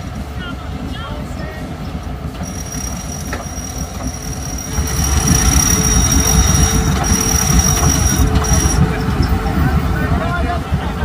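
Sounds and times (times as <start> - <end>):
low engine rumble: 0.0 - 11.0
high-pitched whine: 2.4 - 9.3.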